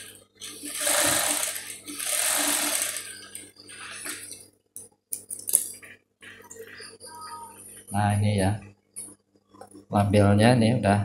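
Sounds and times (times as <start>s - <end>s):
sewing machine stitching: 0.4s - 3.4s.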